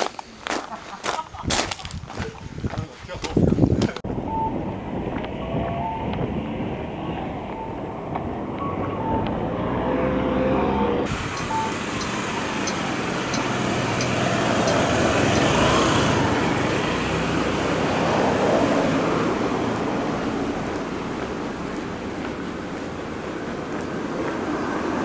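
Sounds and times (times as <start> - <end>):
road traffic: 0.0 - 25.0
faint regular ticks: 11.4 - 15.5.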